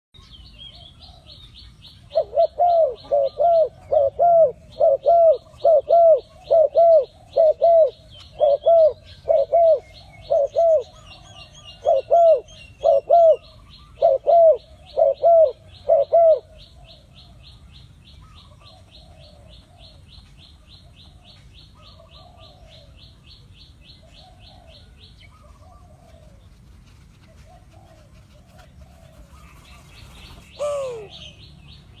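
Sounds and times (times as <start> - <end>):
dove cooing: 2.1 - 17.2, 21.0 - 23.0, 24.0 - 26.5, 27.3 - 31.4
loud falling bird call: 30.5 - 31.3.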